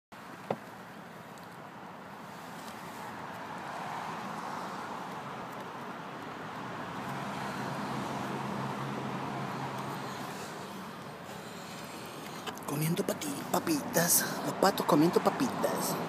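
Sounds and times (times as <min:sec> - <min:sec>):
car passing: 0:01.8 - 0:16.0
low engine hum: 0:04.8 - 0:16.0.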